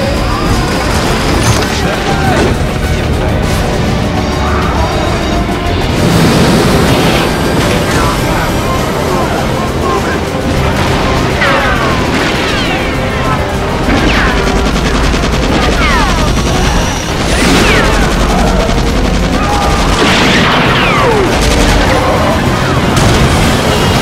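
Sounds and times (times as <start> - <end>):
gunfire and bangs: 0.0 - 4.2, 5.7 - 24.0
action film music: 0.0 - 24.0
voices: 6.9 - 23.0.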